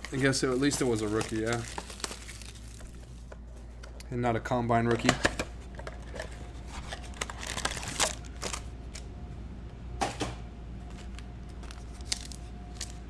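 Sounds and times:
cardboard box and packs rustling: 0:00.0 - 0:03.3, 0:06.2 - 0:08.6.

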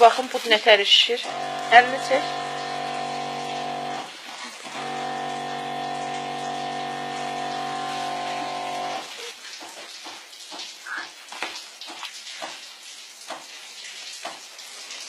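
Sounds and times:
electric pump humming: 0:01.2 - 0:09.2.

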